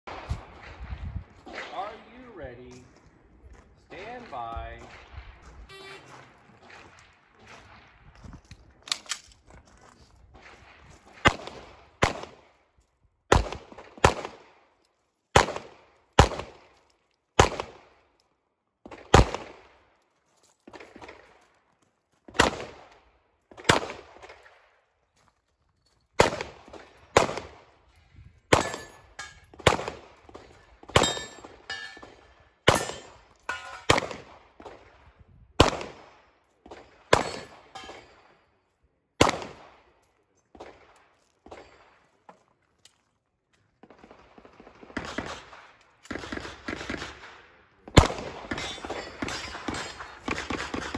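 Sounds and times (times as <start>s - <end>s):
handgun shots echoing: 15.4s - 16.6s, 28.5s - 34.8s, 36.7s - 38.2s, 39.2s - 39.8s.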